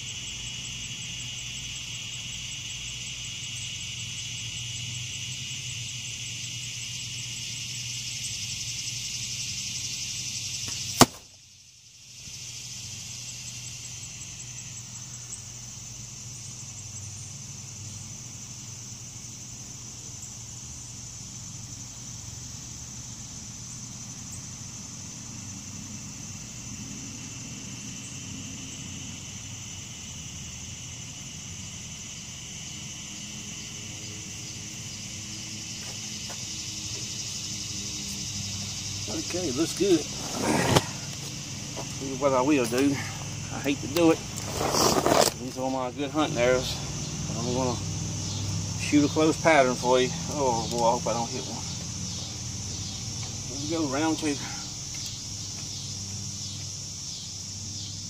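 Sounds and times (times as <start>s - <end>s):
arrow hitting foam target: 10.9s - 11.3s.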